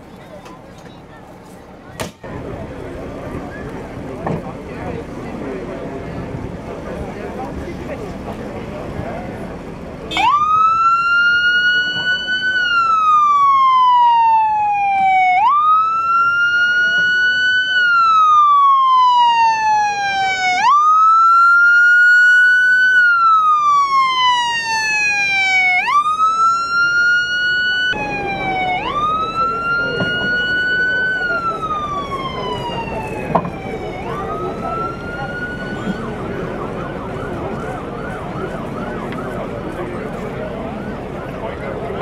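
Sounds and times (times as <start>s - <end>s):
ambulance siren wailing: 10.1s - 42.0s.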